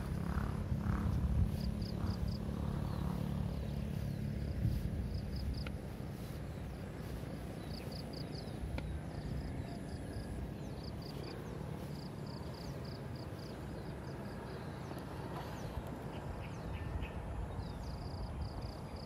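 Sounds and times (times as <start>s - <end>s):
low rumble: 0.0s - 13.3s.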